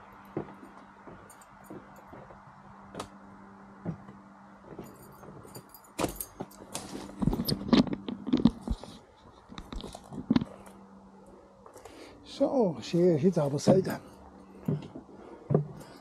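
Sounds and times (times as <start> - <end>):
metallic jingling: 0.1 - 2.4, 4.6 - 7.7, 13.2 - 14.9, 15.7 - 16.0.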